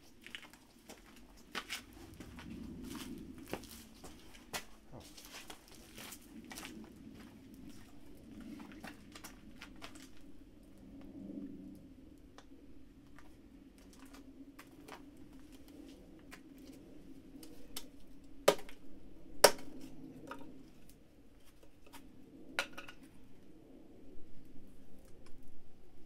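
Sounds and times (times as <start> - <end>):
firewood clicks and crackles: 0.0 - 18.8.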